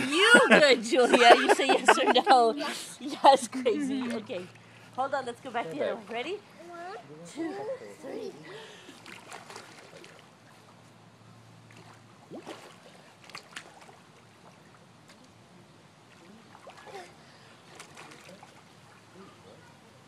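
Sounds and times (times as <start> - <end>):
pool water lapping and splashing: 0.0 - 20.0
small sharp splashes: 8.9 - 10.6, 11.6 - 15.3, 16.0 - 19.2.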